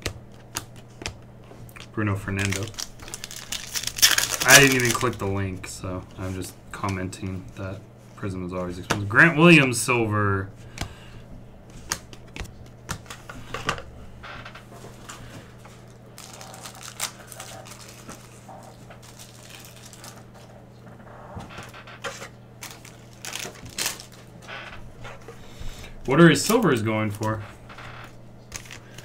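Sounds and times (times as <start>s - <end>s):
cards clicking and tapping: 0.0s - 5.2s, 11.7s - 13.8s, 28.5s - 29.0s
low electrical hum: 0.0s - 29.0s.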